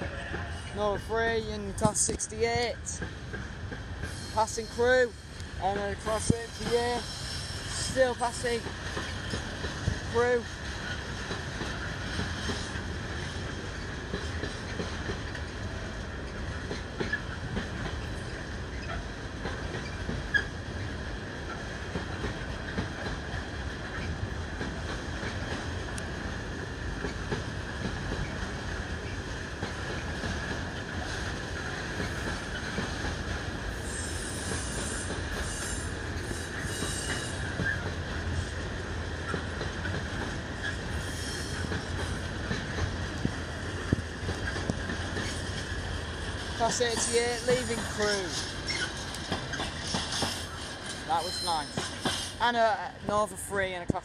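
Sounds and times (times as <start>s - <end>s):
freight train rolling past: 0.0s - 54.0s
high wheel squeal: 50.3s - 52.3s.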